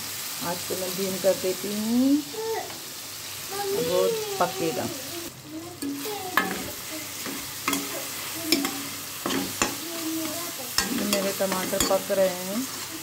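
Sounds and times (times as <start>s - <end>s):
food sizzling in oil: 0.0s - 13.0s
spatula scraping a pan: 5.8s - 13.0s.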